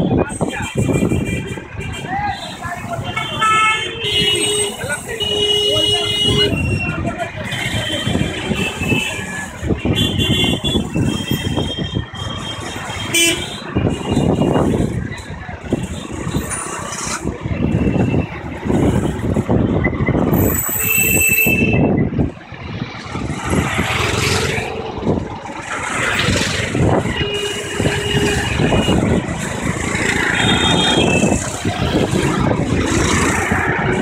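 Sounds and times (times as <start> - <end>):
road traffic rumble: 0.0 - 34.0
vehicle horn toots: 13.0 - 14.2.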